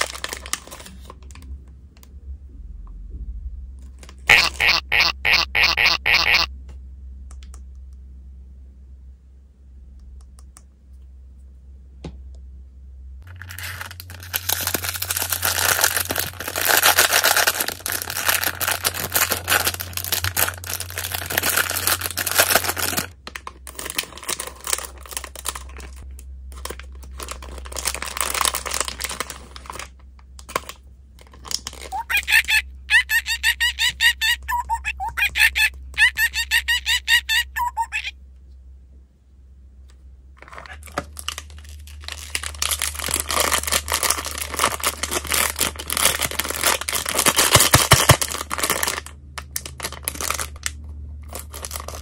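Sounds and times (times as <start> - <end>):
foil wrapper crinkling and tearing: 0.0 - 1.4, 13.2 - 34.0, 40.4 - 52.0
high squeaky notes: 4.3 - 6.5, 31.9 - 38.1.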